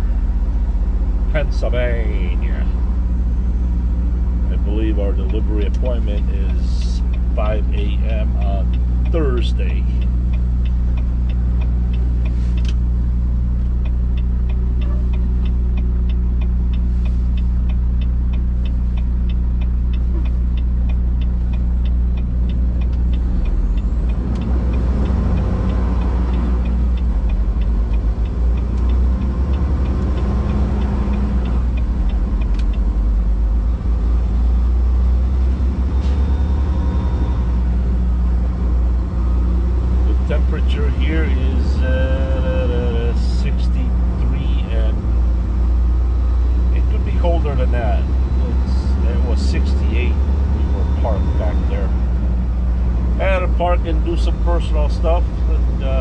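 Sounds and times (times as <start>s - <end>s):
diesel truck engine running: 0.0s - 56.0s
road noise: 0.0s - 56.0s
rapid regular ticking: 0.4s - 35.9s.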